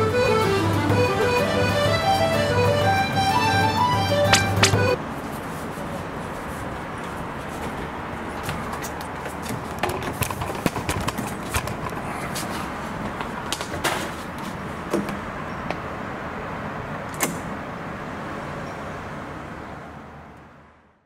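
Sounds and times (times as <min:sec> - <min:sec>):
steady outdoor hum: 0:00.0 - 0:21.0
sharp lock click: 0:17.1 - 0:17.5.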